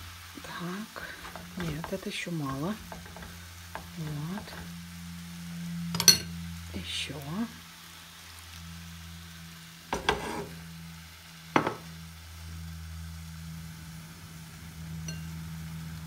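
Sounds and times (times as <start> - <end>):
broth sizzling in frying pan: 0.0 - 16.0.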